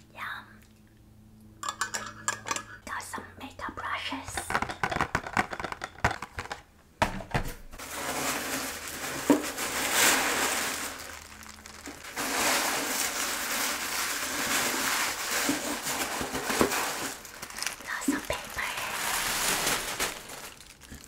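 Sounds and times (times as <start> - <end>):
packaging crinkling and rustling: 7.8 - 21.0.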